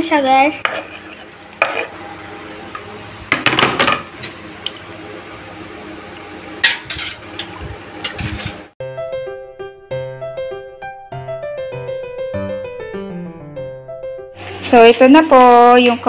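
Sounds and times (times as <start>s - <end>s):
knife scraping cutting board: 0.6s - 2.0s, 6.7s - 7.3s, 8.0s - 8.7s
liquid splashing: 4.6s - 8.5s.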